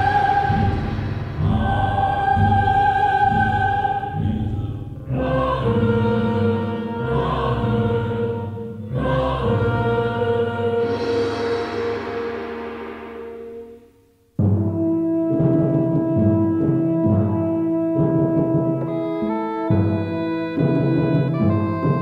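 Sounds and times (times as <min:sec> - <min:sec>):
repeating low beat: 0:00.0 - 0:04.8
choir singing long notes: 0:00.0 - 0:14.0.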